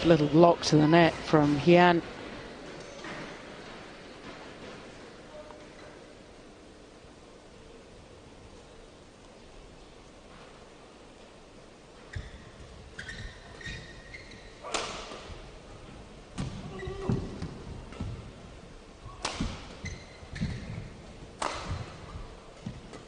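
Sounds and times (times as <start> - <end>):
shoe squeaks on court: 12.0 - 14.7, 19.8 - 20.9
rackets striking shuttlecock: 14.6 - 15.4, 19.1 - 23.0.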